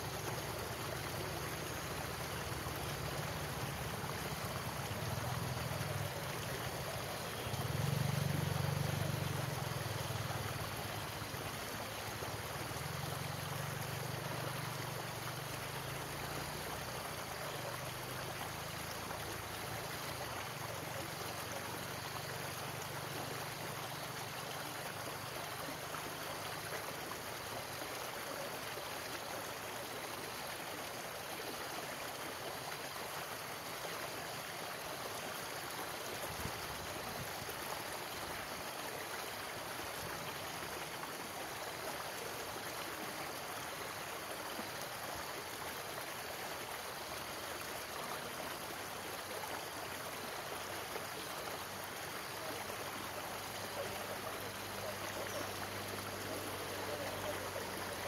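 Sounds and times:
stream rushing over rocks: 0:00.0 - 0:58.0.

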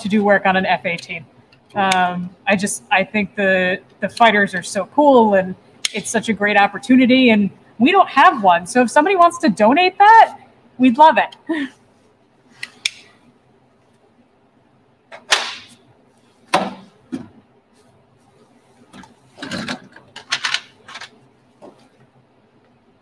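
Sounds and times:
knocks and scrapes of tools: 0:18.9 - 0:22.0.

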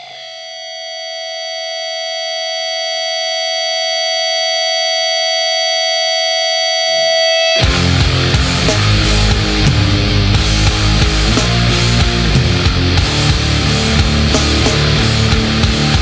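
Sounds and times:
electric guitar feedback: 0:00.0 - 0:16.0
low guitar note: 0:07.6 - 0:16.0
rock band playing: 0:07.6 - 0:16.0.

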